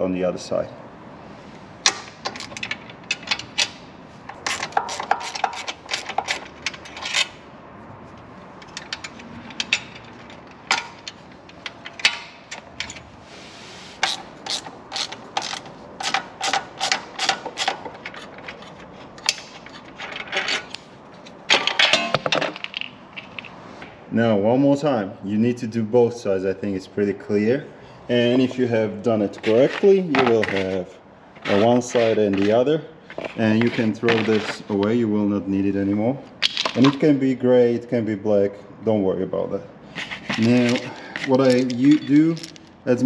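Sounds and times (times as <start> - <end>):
ratchet wrench clicking: 14.0 - 18.3.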